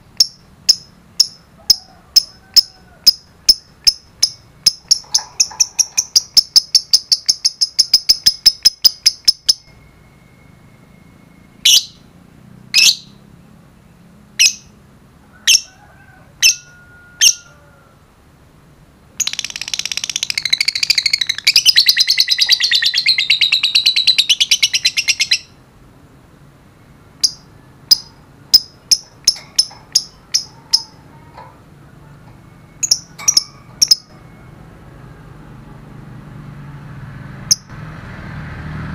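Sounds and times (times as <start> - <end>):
lovebirds chirping: 0.2 - 12.1, 12.7 - 14.8, 19.2 - 34.7
shrill bird calls: 0.2 - 12.1, 16.4 - 17.8, 19.2 - 25.6, 26.8 - 34.6.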